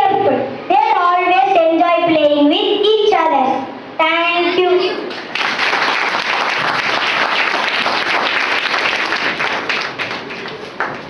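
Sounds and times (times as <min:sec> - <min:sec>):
audience applauding: 0:05.1 - 0:11.0.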